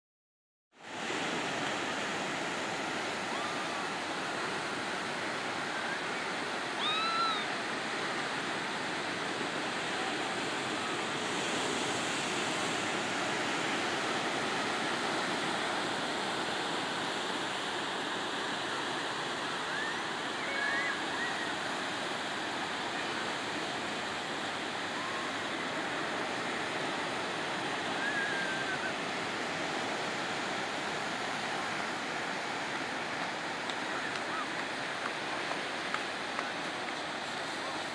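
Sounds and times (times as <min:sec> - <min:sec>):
surf washing over rocks: 0:00.8 - 0:37.9.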